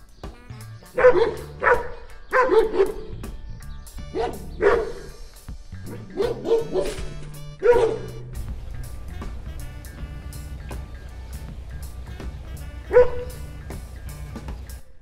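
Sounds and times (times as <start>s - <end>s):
background music: 0.0s - 15.0s
dog barking: 1.0s - 3.1s, 4.0s - 5.2s, 5.8s - 8.2s, 12.9s - 13.4s.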